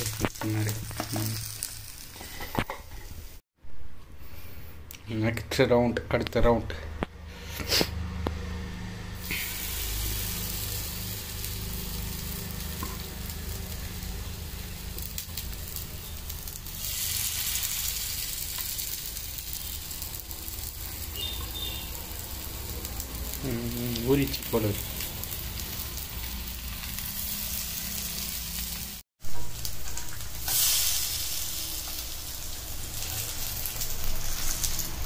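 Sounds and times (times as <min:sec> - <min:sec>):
fish sizzling on a hot griddle: 0:00.0 - 0:03.4, 0:09.2 - 0:35.0.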